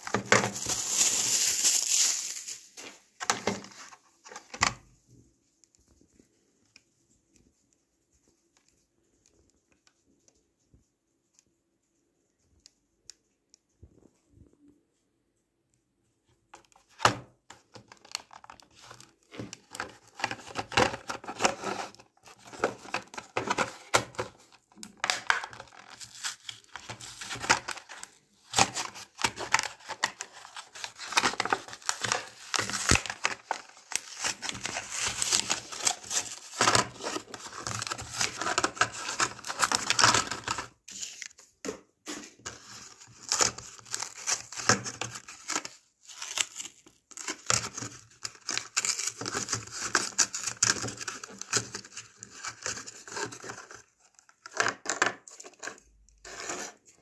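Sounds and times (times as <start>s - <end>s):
plastic blister crinkling: 0.0s - 4.6s, 17.7s - 41.5s.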